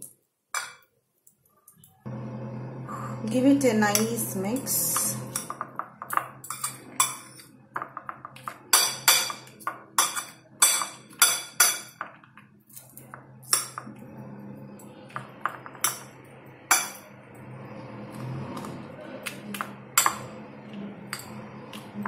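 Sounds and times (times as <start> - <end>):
metal spoon scraping ceramic plate: 5.0 - 7.6, 8.7 - 12.0.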